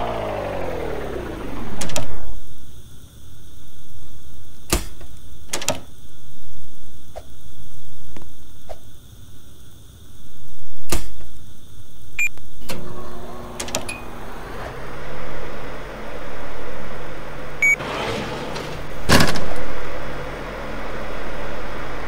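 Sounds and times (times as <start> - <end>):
appliance low hum: 0.0 - 8.7, 10.2 - 22.0
sharp click: 1.8 - 2.3, 10.9 - 11.3
electronic appliance beeps: 12.2 - 14.2, 17.6 - 17.8
rushing burst: 14.8 - 22.0.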